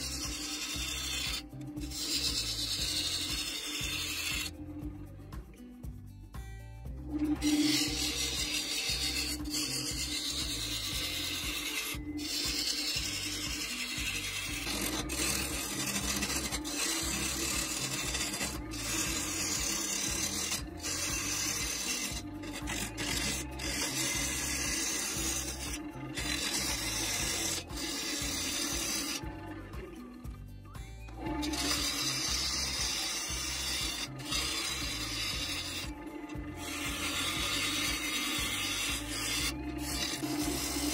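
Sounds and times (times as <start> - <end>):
lathe gouge rasping wood: 0.0 - 4.7, 7.0 - 29.8, 31.2 - 40.9.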